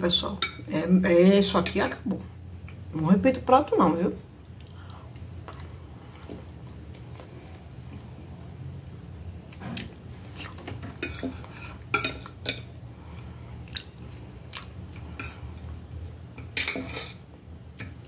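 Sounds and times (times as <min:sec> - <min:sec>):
knife and fork scraping a plate: 0:10.9 - 0:12.3.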